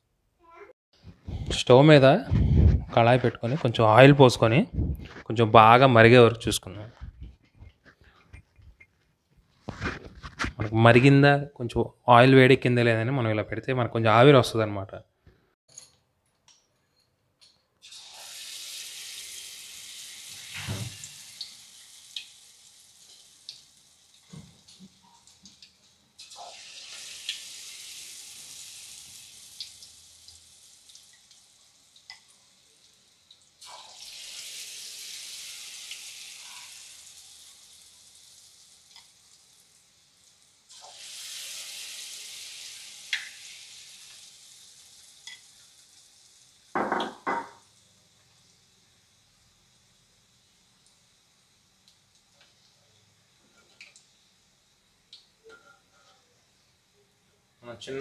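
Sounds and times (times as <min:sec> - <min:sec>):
batter sizzling in hot oil: 0:17.8 - 0:57.2.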